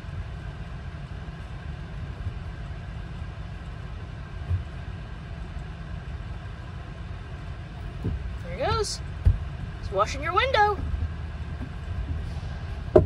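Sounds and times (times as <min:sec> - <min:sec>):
low rumble in truck cab: 0:00.0 - 0:13.0
thump: 0:11.6 - 0:13.0.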